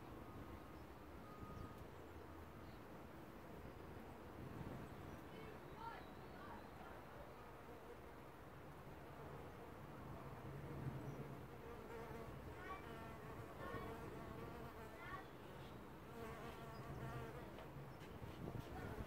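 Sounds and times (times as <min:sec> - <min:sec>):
bee buzzing: 0:16.1 - 0:17.6.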